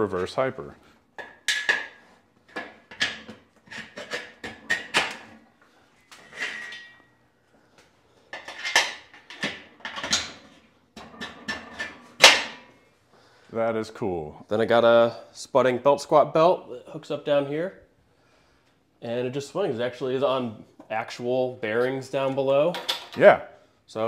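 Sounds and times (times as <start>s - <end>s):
metal clanks and knocks: 6.2s - 7.1s, 8.4s - 12.7s.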